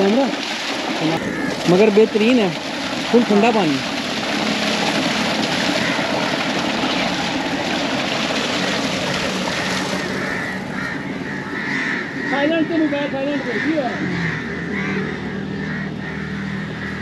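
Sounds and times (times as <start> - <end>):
water gushing from pipe: 0.0 - 11.1
tractor engine humming: 0.0 - 17.0.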